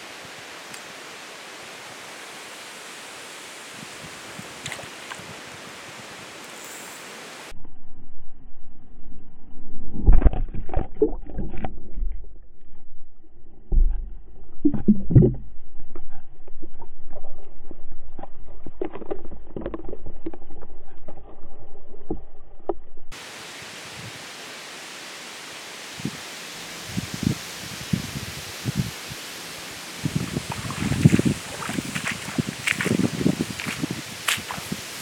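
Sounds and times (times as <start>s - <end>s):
wind in reeds: 0.0s - 7.5s, 25.8s - 35.0s
muffled splashing: 3.8s - 5.4s, 29.9s - 35.0s.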